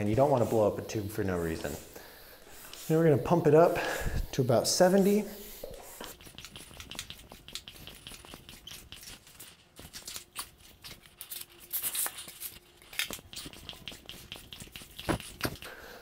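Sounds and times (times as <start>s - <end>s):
air hissing: 0.0s - 6.1s.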